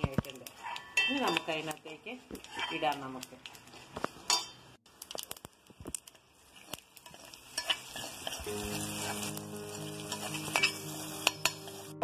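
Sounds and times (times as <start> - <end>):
hot oil sizzling: 0.0 - 12.0
spoon scraping metal pan: 0.4 - 3.0, 6.6 - 12.0.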